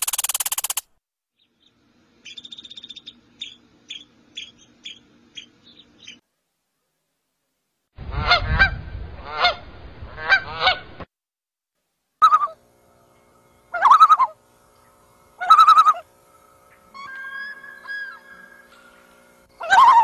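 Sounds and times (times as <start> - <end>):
low rumble: 8.0 - 10.3
geese honking: 10.2 - 10.8, 13.7 - 14.4, 15.4 - 16.1, 19.6 - 20.0.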